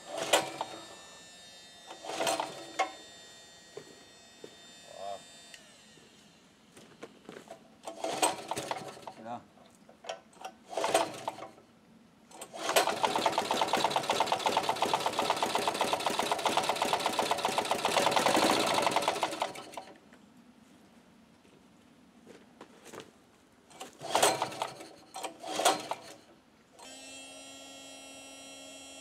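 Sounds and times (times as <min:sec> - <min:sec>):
generator engine running: 0:12.9 - 0:19.8.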